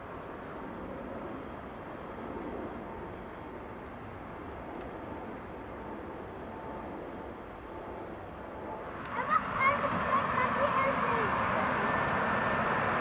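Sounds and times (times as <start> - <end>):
faint jet engine whine: 0.0 - 13.0
jet engines rumbling: 6.8 - 13.0.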